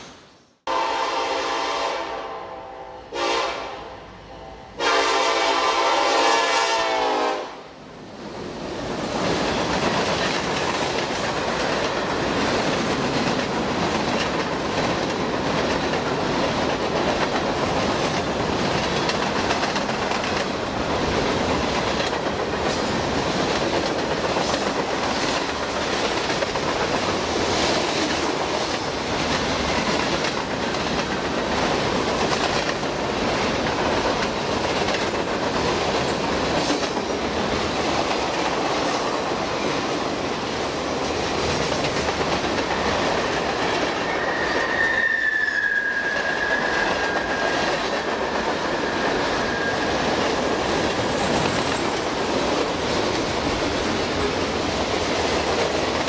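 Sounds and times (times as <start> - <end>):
train rumbling past: 0.0 - 56.0
locomotive air horn blasts: 0.7 - 7.6
wheels clacking over rail joints: 9.1 - 40.0.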